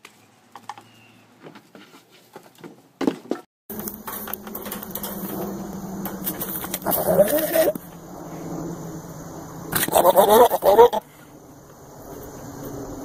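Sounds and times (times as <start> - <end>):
goat hooves on wooden boards: 0.5 - 6.9
goat bleating: 6.8 - 7.8, 9.8 - 11.1.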